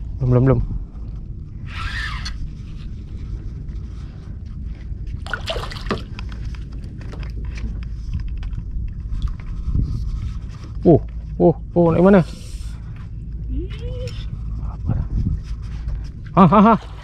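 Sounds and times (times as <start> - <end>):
wind rumble on microphone: 0.0 - 17.0
fish thrashing in water: 5.2 - 6.2.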